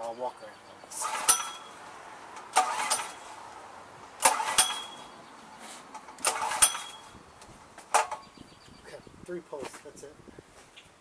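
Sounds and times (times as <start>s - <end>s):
generator pull-starter rope whirring: 0.9s - 8.4s.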